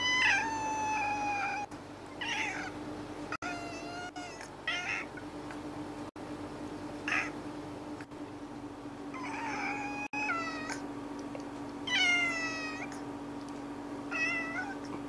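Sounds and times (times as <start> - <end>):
cat meowing: 0.0 - 2.7, 3.4 - 5.1, 9.2 - 10.8, 11.9 - 13.0, 14.1 - 14.9
steady low hum: 0.0 - 15.0.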